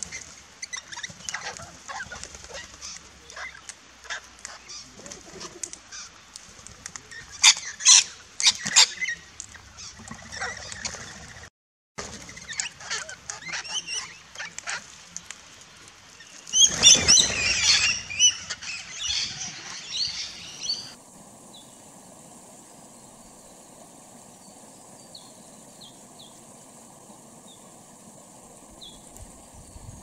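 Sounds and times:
parrots screeching and chattering: 0:00.6 - 0:06.2, 0:07.1 - 0:11.3, 0:12.3 - 0:14.9, 0:16.6 - 0:21.0
steady soft hiss: 0:12.2 - 0:30.0
wing flaps: 0:16.5 - 0:21.2.

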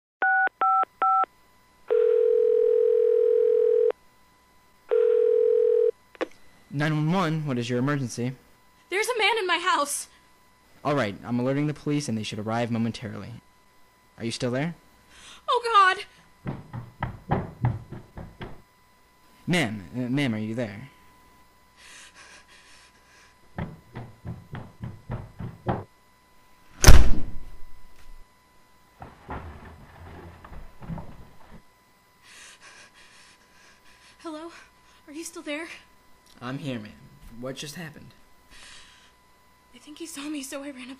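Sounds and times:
telephone ringing tone: 0:00.2 - 0:01.3, 0:01.9 - 0:04.0, 0:04.9 - 0:06.0
footsteps running up stairs: 0:16.4 - 0:18.6, 0:23.5 - 0:25.9
door slamming shut: 0:26.8 - 0:27.5.

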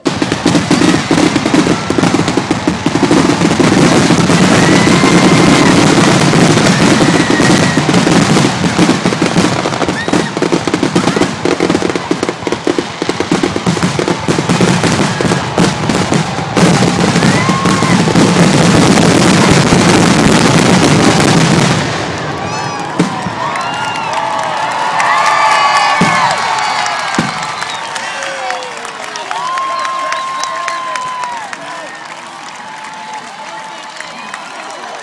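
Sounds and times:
fireworks exploding and crackling: 0:00.0 - 0:35.0.

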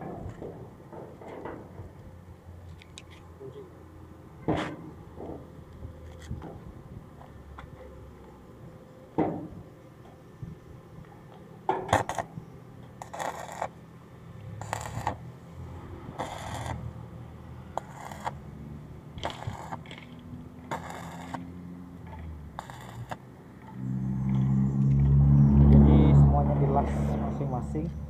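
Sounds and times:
arc welder crackling: 0:11.9 - 0:12.3, 0:13.0 - 0:13.8, 0:14.6 - 0:15.3, 0:16.2 - 0:17.0, 0:17.8 - 0:18.5, 0:19.1 - 0:21.6, 0:22.5 - 0:24.4
low engine rumble: 0:14.2 - 0:28.0.

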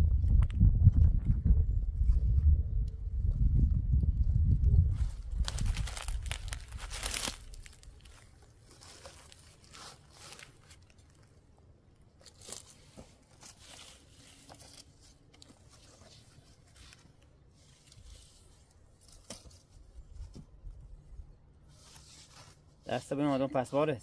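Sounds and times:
cloth and firewood rustling: 0:04.8 - 0:24.0.

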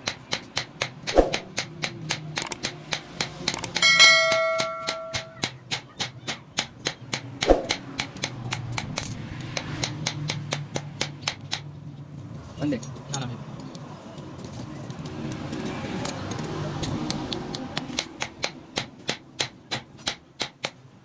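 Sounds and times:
bell-like metal ring: 0:03.8 - 0:05.4
hammer blows on anvil: 0:03.8 - 0:05.6.

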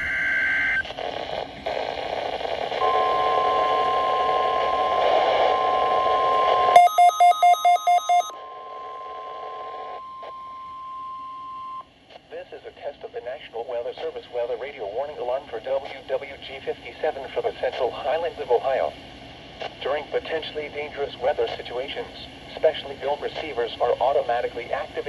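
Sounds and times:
radio hiss: 0:00.6 - 0:02.9, 0:12.1 - 0:25.0
steady attention tone: 0:02.8 - 0:11.8.

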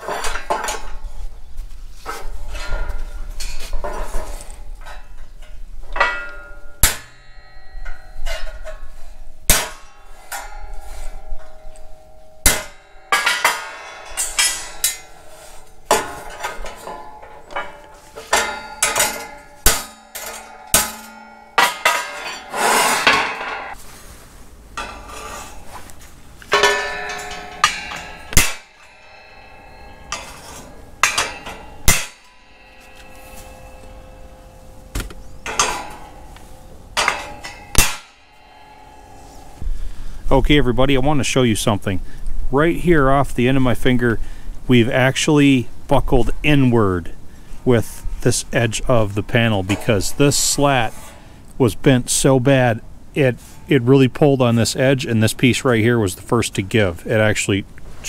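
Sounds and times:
hammer striking sheet metal: 0:05.9 - 0:23.8, 0:26.4 - 0:39.6.

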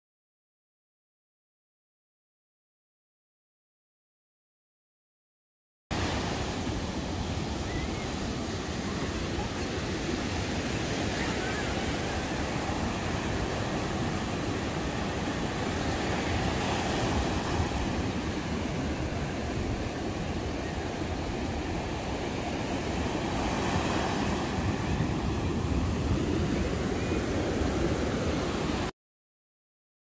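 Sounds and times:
surf breaking on a beach: 0:06.0 - 0:28.9.

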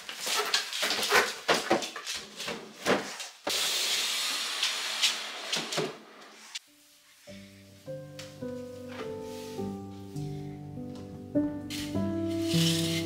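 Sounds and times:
furniture scraping across floor: 0:11.7 - 0:13.0.

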